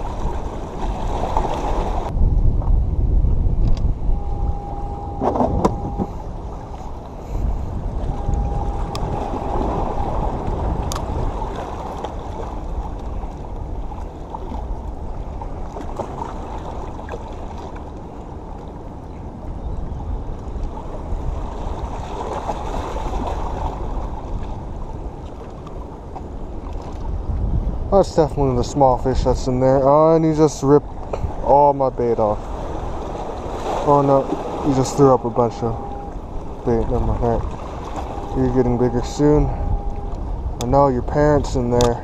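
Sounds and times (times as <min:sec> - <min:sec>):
waves washing against rocks: 0:00.0 - 0:02.1, 0:30.6 - 0:39.5
wind on microphone: 0:00.0 - 0:42.0.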